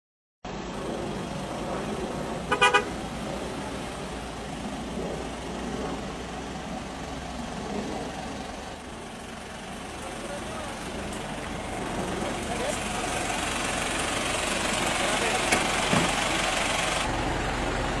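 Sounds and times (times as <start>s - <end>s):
vehicle and road noise: 0.4s - 18.0s
vehicle horn toots: 2.5s - 2.9s.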